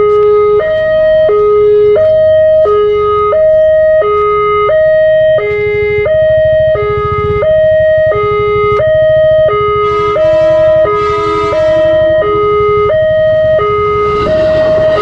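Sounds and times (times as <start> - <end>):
two-tone level crossing alarm: 0.0 - 15.0
low rumble: 13.3 - 15.0.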